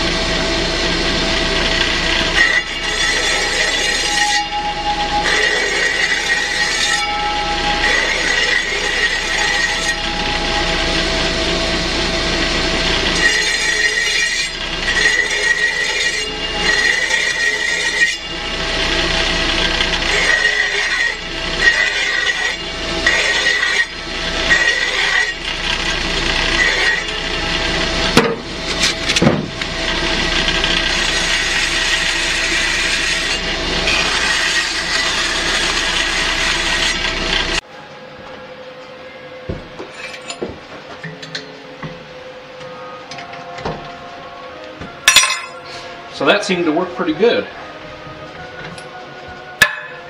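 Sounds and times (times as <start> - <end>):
brake lathe running: 0.0 - 37.6
tool scraping and squealing on metal: 1.5 - 37.7, 39.8 - 44.2.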